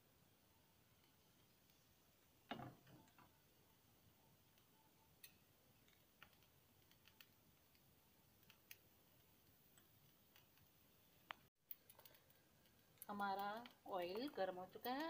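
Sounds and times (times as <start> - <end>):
oil ticking in a hot pan: 4.5 - 15.0.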